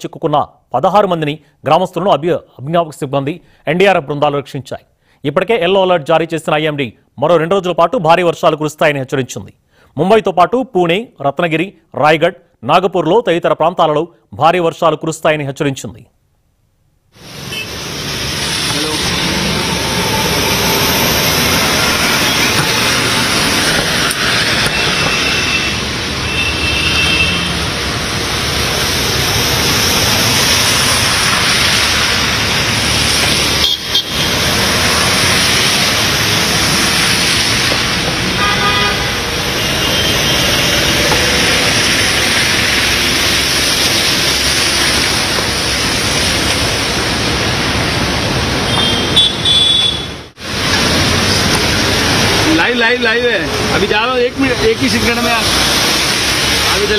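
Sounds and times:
traffic on flooded road: 17.2s - 56.9s
vehicle horns honking: 17.4s - 17.8s, 20.8s - 27.7s, 33.6s - 34.5s, 38.3s - 41.7s, 48.7s - 50.3s.

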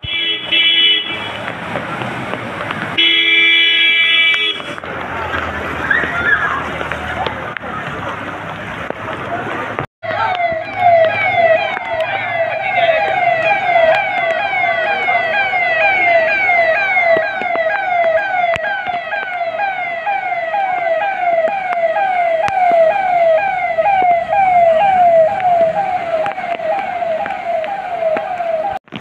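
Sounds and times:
electronic siren yelping: 10.0s - 28.8s.

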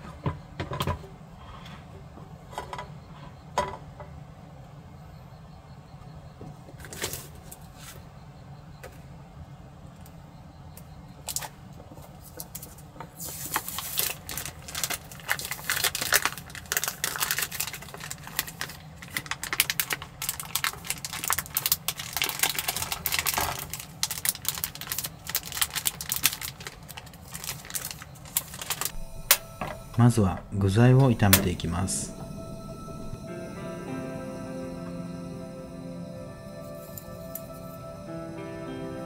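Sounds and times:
low background rumble: 26.9s - 39.0s.

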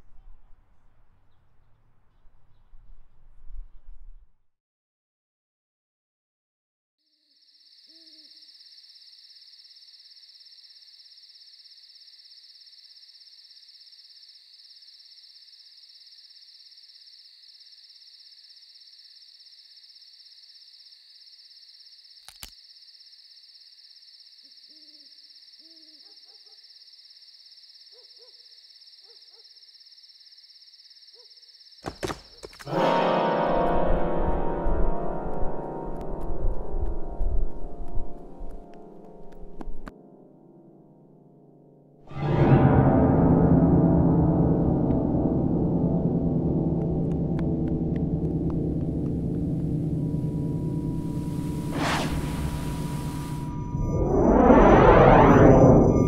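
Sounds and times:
crickets chirping: 7.0s - 33.1s, 34.0s - 39.9s, 45.7s - 56.0s
owl hooting: 24.6s - 26.6s.

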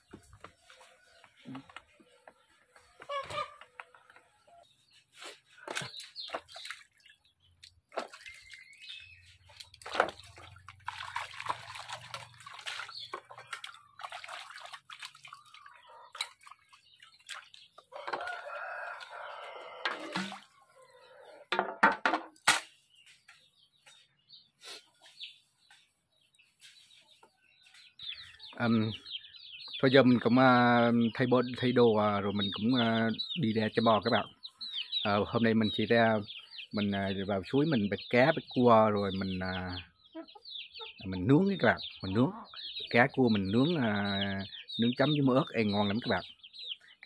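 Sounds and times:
chickens clucking: 0.0s - 6.7s, 15.4s - 21.8s, 26.6s - 47.0s
water splashing and dripping: 5.6s - 20.8s
rooster crowing: 18.0s - 20.2s.

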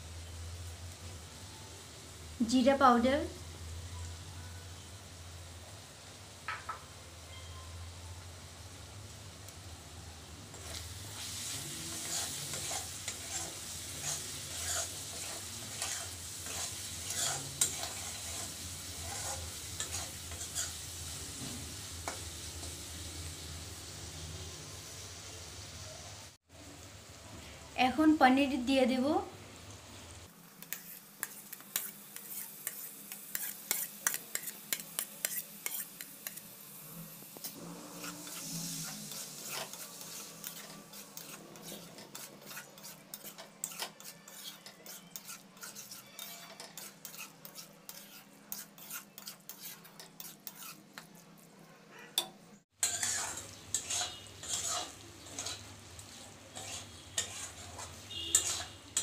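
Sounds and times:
light sizzle: 0.0s - 59.0s
metal spatula scraping a pan: 10.5s - 22.8s, 30.6s - 51.4s, 52.0s - 59.0s.

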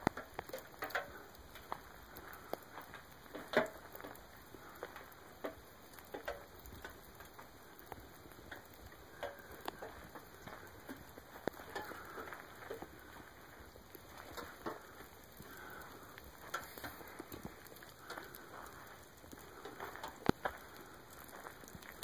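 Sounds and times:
melting ice dripping: 0.0s - 22.0s.

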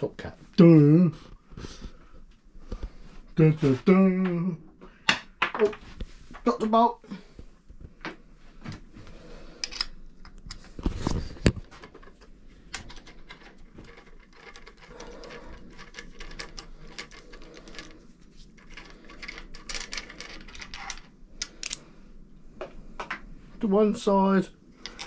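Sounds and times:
metal tools clinking: 18.6s - 21.9s.

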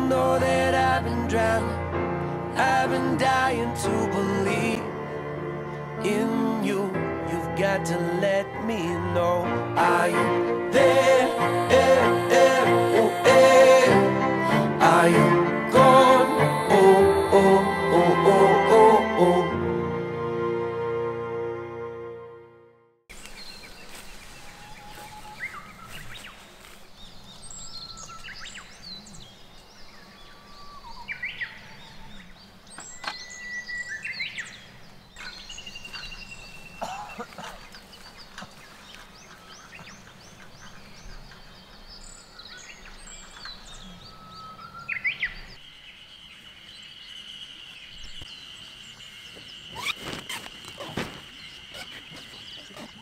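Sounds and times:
steady high-pitched tone: 10.1s - 22.2s
birds chirping and whistling: 23.2s - 53.0s.

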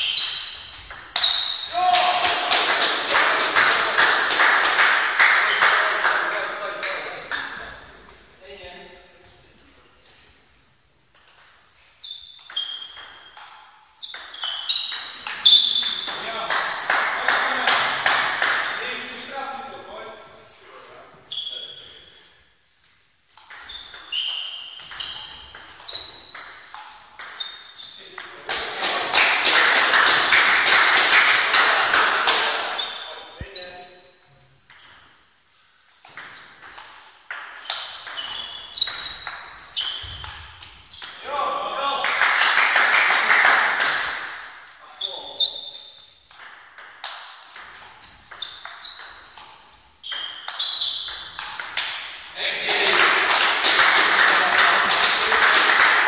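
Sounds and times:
table tennis ball pings: 12.3s - 16.3s, 23.4s - 28.4s, 45.8s - 52.0s
table tennis ball hits: 46.2s - 52.2s.

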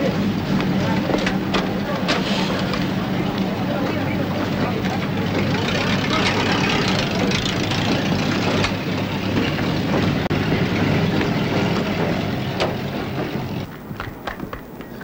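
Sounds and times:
truck engine rumbling: 0.0s - 14.8s
running footsteps on pavement: 7.1s - 15.0s.

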